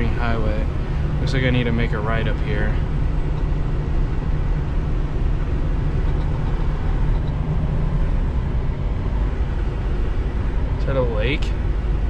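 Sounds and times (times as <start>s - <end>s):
truck engine and road drone: 0.0s - 12.0s.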